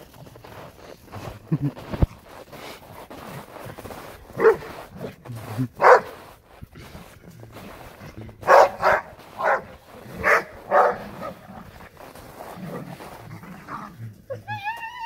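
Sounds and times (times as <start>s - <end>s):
dog barking: 4.4s - 4.8s, 5.8s - 6.2s, 8.4s - 11.4s
dog growling: 6.8s - 14.5s.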